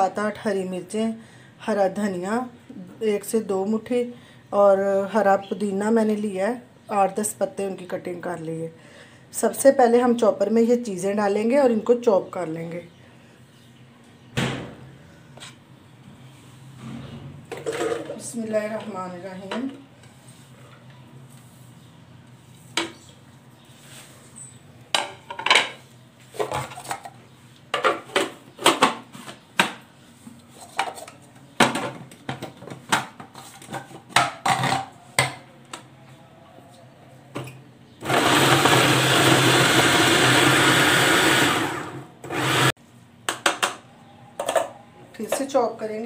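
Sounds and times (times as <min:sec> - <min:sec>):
electric food chopper running: 0:38.0 - 0:42.7.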